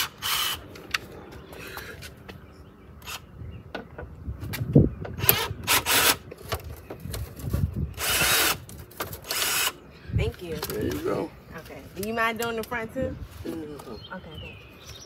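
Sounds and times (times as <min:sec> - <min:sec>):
cordless drill bursts: 0:00.0 - 0:00.6, 0:05.2 - 0:06.2, 0:08.0 - 0:08.6, 0:09.2 - 0:09.8.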